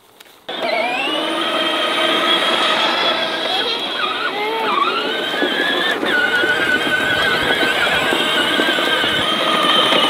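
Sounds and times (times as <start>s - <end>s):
electric toy tractor motors whining: 0.5s - 10.0s
plastic wheels rumbling on grass: 3.4s - 10.0s.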